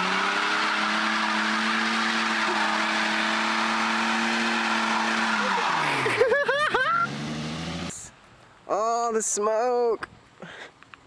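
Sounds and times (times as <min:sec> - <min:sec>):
car engine at high revs: 0:00.0 - 0:08.1
tyres squealing: 0:00.2 - 0:06.2.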